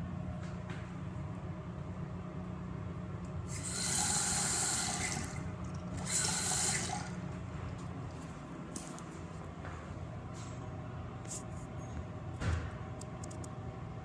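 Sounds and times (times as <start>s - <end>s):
steady low hum: 0.0s - 14.0s
toilet flushing: 3.5s - 7.3s.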